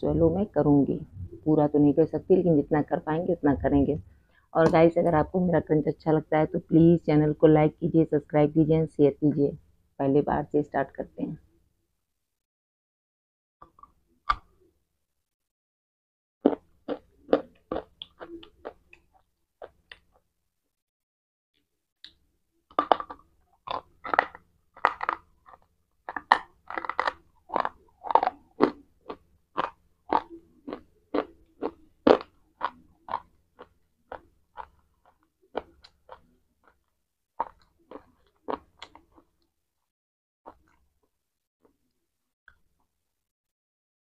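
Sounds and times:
brittle chewing crunches: 16.5s - 20.2s, 22.7s - 39.4s.

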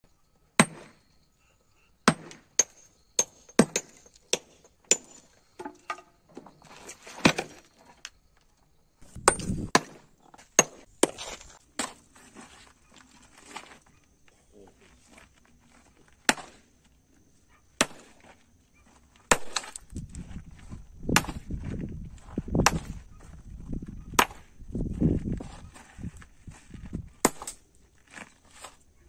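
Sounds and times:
sledgehammer striking stone: 0.6s - 1.0s, 2.0s - 5.8s, 7.2s - 7.7s, 9.1s - 12.1s, 16.2s - 16.6s, 17.8s - 18.3s, 19.3s - 19.9s, 21.1s - 21.5s, 22.6s - 23.1s, 24.1s - 24.5s, 27.2s - 27.6s.

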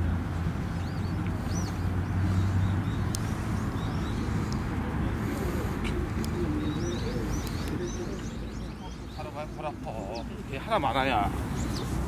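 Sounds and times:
distant traffic hum: 0.0s - 12.0s
small birds chirping: 0.1s - 12.0s
faint voices: 4.2s - 12.0s.

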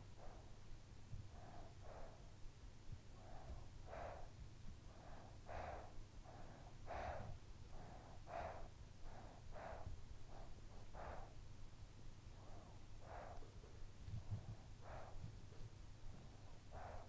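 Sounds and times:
faint low rumble: 0.0s - 17.0s
child breathing softly: 1.1s - 11.4s, 12.4s - 13.5s, 16.2s - 17.0s.

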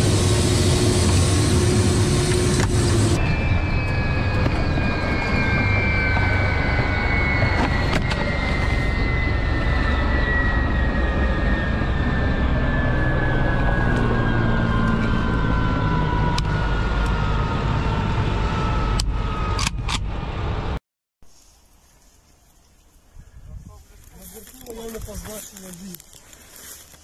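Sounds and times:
helicopter engine and rotor rumble: 0.0s - 20.8s
turbines winding down: 0.0s - 20.8s
held cockpit tone: 0.1s - 19.6s.

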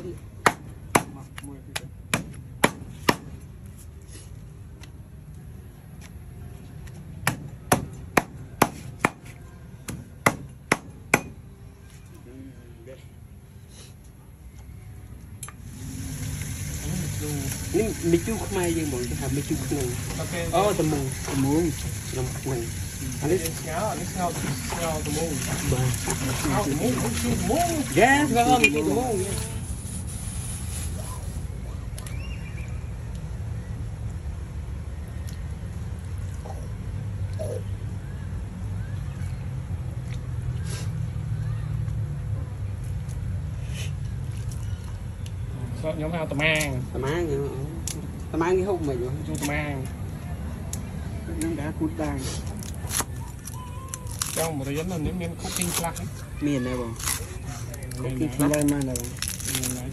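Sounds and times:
cleaver chopping on wooden block: 0.4s - 3.3s, 7.2s - 9.3s, 9.9s - 11.4s
meat splashing into water: 20.8s - 28.5s.

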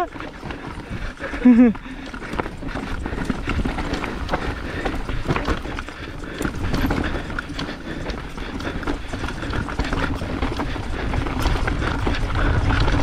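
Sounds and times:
bike clattering over roots: 0.0s - 13.0s
tyres and wind rumble: 0.0s - 13.0s.

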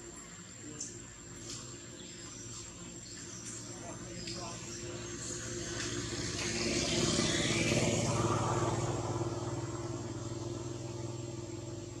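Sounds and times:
vehicle engine passing: 3.8s - 12.0s.

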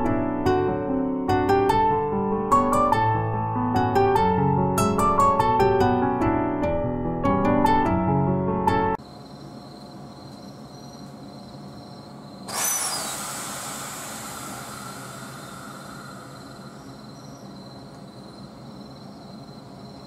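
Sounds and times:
electric train humming: 9.0s - 20.0s
compressed air hissing: 12.4s - 17.6s.

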